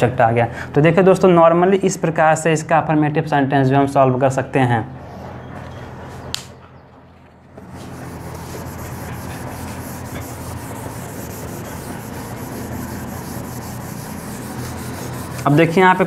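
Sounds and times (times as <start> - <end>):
hand scrubbing whiteboard: 7.6 - 16.0.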